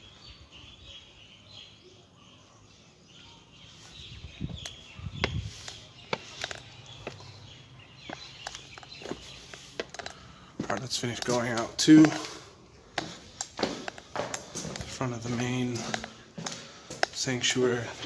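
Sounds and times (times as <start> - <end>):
small birds chirping: 0.0 - 18.0
footsteps on stone floor: 3.8 - 18.0.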